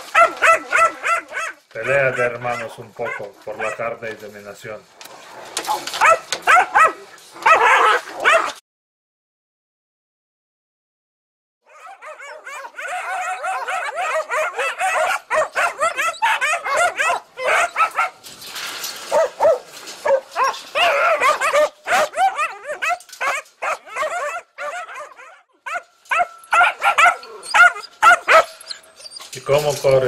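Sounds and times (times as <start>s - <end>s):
puppies yelping and barking: 0.0s - 4.0s, 5.6s - 8.6s, 11.7s - 29.7s.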